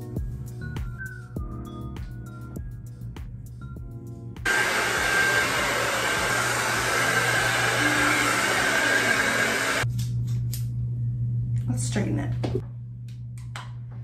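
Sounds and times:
background music: 0:00.0 - 0:04.9
hair dryer blowing: 0:04.5 - 0:09.8.

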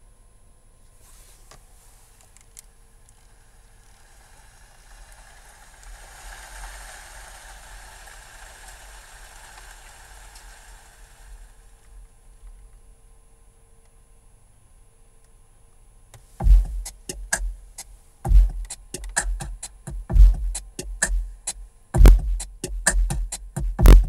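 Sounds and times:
recorded rain hiss: 0:01.0 - 0:13.4
low subwoofer rumble: 0:16.4 - 0:24.0.

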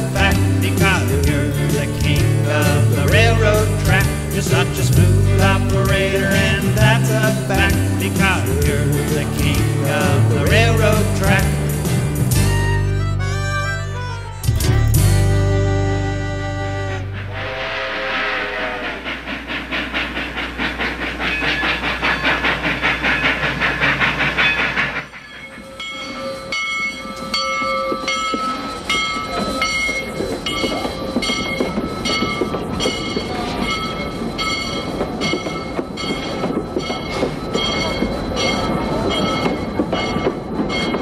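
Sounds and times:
steam hiss: 0:00.0 - 0:12.4, 0:17.0 - 0:26.4
steam locomotive chuffing: 0:00.0 - 0:41.0
steady ringing tones: 0:20.9 - 0:41.0.

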